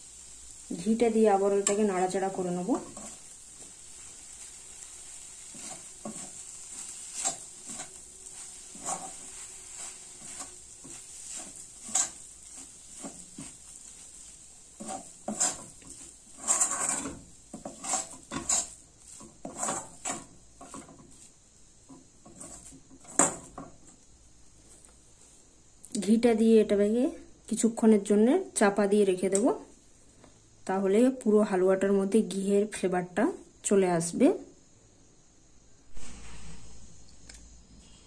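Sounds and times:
metal spatula scraping pan: 0:05.1 - 0:21.3, 0:21.9 - 0:23.7.

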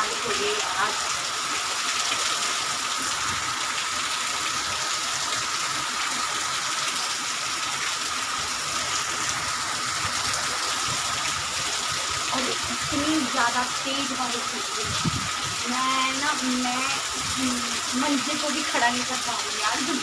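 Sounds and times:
heavy rain pouring: 0:00.0 - 0:20.0
strong wind: 0:09.3 - 0:13.4, 0:14.7 - 0:15.9.

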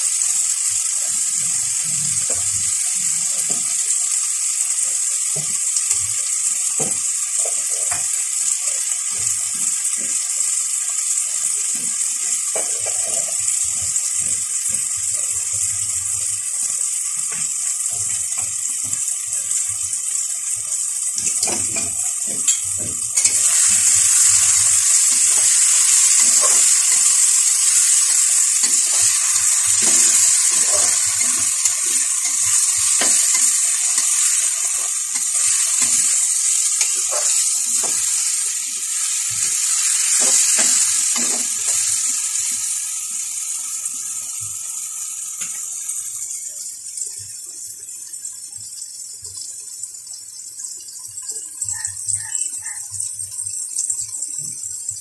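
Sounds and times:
vegetables sizzling in hot oil: 0:00.0 - 0:55.0
metal spatula scraping pan: 0:21.4 - 0:38.2.

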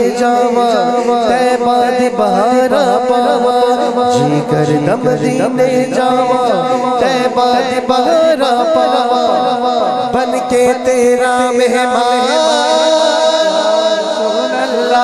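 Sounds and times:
steady held drone: 0:00.0 - 0:10.8
man singing into a microphone: 0:00.0 - 0:15.0.

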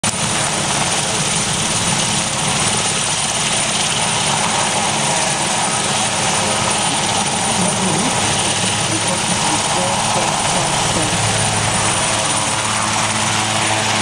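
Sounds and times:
helicopter rotor beat: 0:00.0 - 0:14.0
turbine noise: 0:00.0 - 0:14.0
thin high whine: 0:06.2 - 0:14.0.

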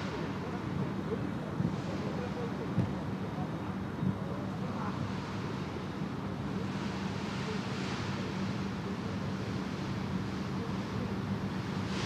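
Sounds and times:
wind rush on microphone: 0:00.0 - 0:03.1.

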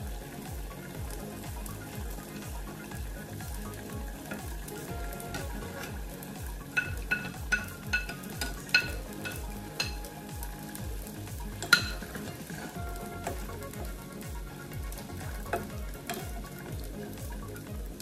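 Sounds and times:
sauce sizzling: 0:00.0 - 0:18.0
spatula and plate knocking pot: 0:11.6 - 0:12.4.

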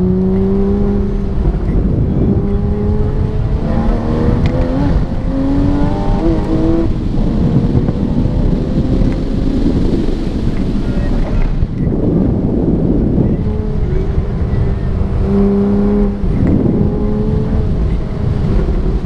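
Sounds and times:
sports car engine revving: 0:00.0 - 0:11.6, 0:12.8 - 0:19.0
road tyre and wind noise: 0:00.0 - 0:19.0.

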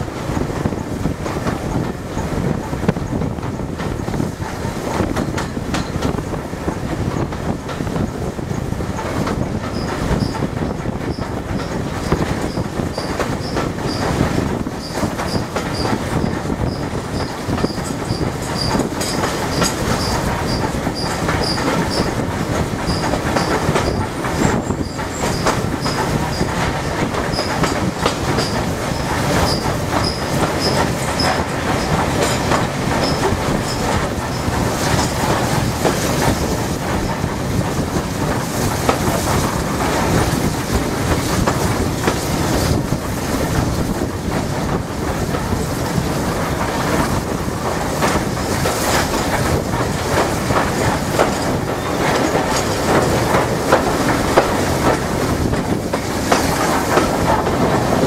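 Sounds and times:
steam locomotive running gear rumble: 0:00.0 - 0:58.0
wheels clattering over rail joints: 0:00.0 - 0:58.0.

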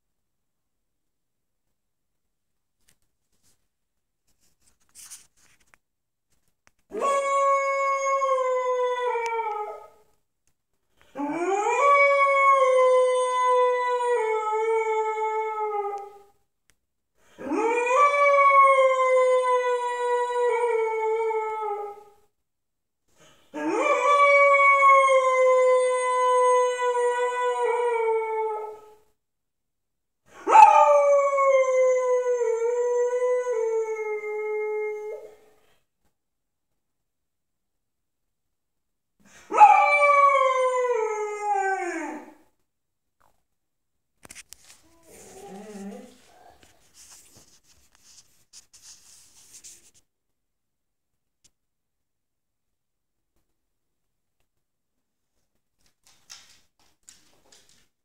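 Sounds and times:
dog howling: 0:39.5 - 0:42.4, 0:44.9 - 0:46.7.

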